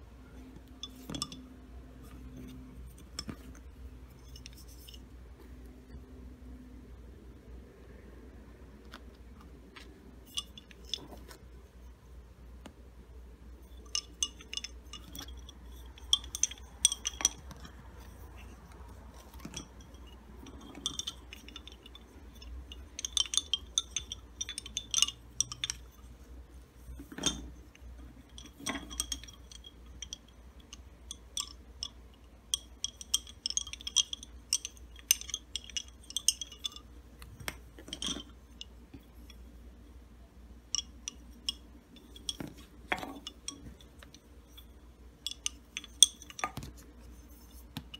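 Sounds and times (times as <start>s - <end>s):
wooden bobbins clicking together: 0.4s - 5.0s, 13.6s - 39.5s, 40.6s - 47.9s.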